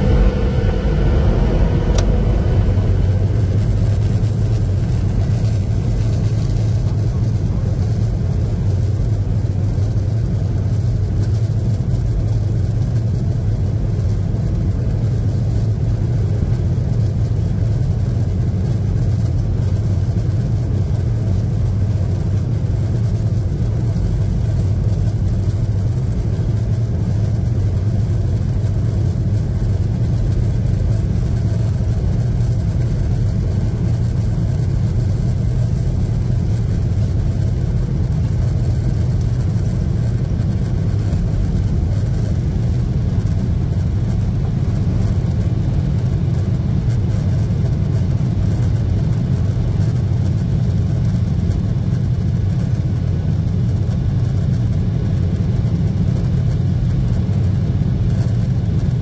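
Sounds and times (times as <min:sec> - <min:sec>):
jet engines low drone: 0:00.0 - 0:59.0.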